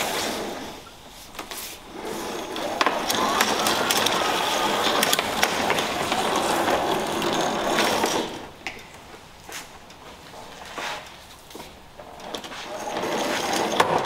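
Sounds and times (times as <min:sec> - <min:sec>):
hose reel rattling and clicking: 0:02.5 - 0:08.3.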